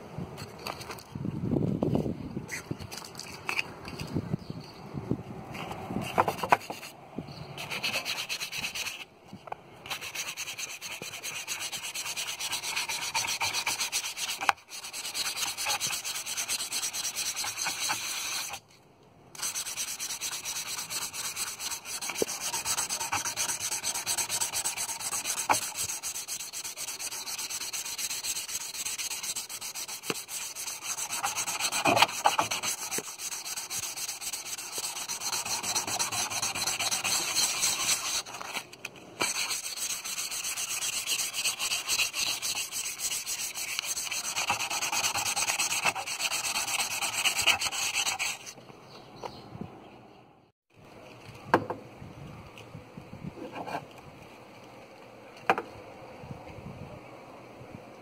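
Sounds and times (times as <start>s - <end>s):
hand rubbing on metal: 9.9s - 18.6s, 19.4s - 48.6s.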